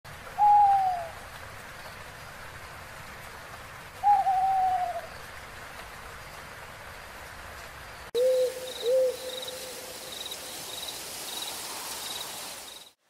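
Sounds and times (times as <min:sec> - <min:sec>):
faint steady hiss: 0:00.1 - 0:13.0
owl hooting: 0:00.4 - 0:01.2, 0:04.0 - 0:05.1, 0:08.2 - 0:09.9.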